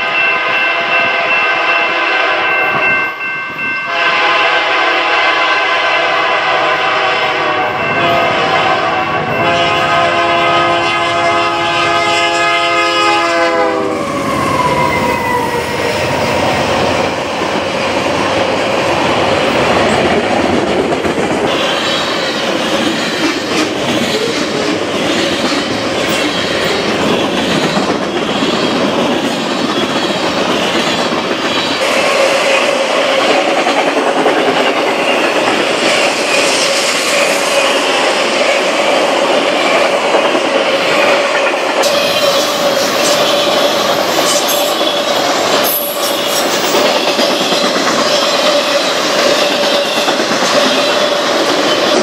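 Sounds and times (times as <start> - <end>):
train horn: 0.0 - 2.9, 3.9 - 16.4.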